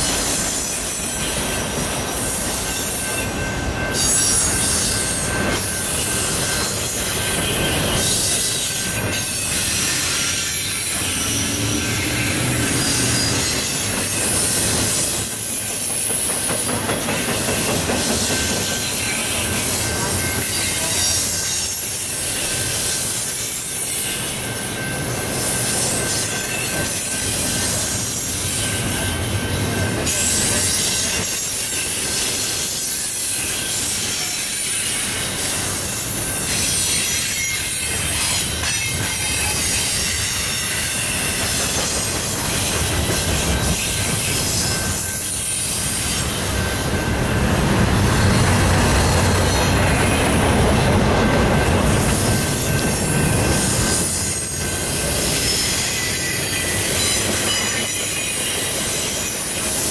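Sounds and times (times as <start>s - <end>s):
high wheel squeal: 0.0s - 59.9s
steel wheels rumbling on rail: 0.0s - 59.9s.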